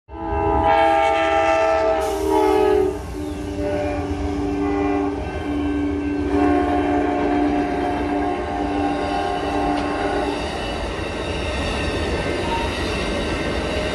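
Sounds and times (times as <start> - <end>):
locomotive horn chord: 0.1 - 10.4
passing train cars rumbling: 0.1 - 13.9.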